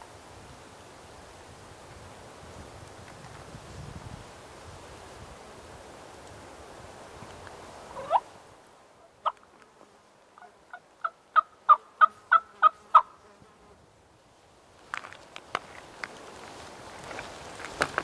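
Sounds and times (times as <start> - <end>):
turkey yelps: 8.0 - 8.3
crunches in dry leaves: 14.7 - 18.0.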